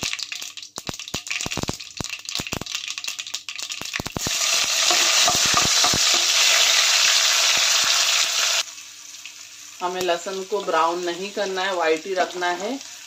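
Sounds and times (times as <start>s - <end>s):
seeds popping in hot oil: 0.0s - 8.0s
loud steady sizzle: 0.0s - 13.0s.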